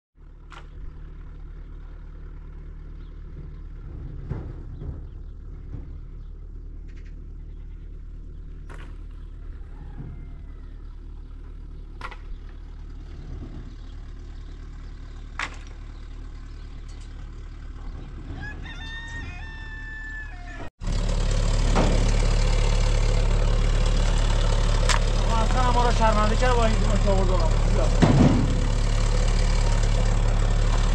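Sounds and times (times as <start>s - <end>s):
engine running: 0.2s - 30.9s
low rumble: 0.4s - 18.8s
rooster crowing: 9.4s - 11.1s, 18.2s - 20.7s.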